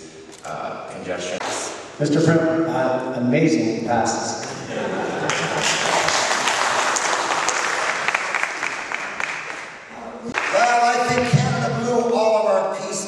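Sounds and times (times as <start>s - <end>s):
person speaking: 0.0s - 4.8s, 9.9s - 13.0s
audience applause: 5.1s - 11.3s.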